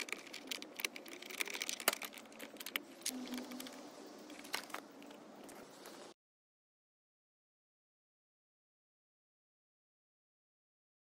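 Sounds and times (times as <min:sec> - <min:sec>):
cardboard rustling: 0:00.0 - 0:06.2.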